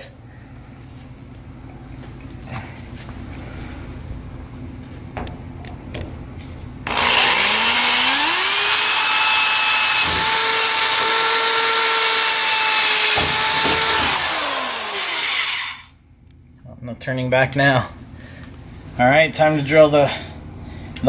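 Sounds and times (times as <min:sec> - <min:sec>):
electric drill boring metal: 0:06.9 - 0:15.9.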